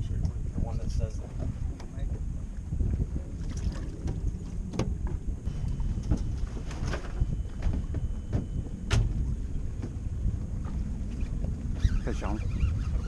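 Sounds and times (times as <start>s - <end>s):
wind buffeting microphone: 0.0s - 13.0s
sharp knocks on boat: 3.7s - 5.2s, 6.0s - 10.0s.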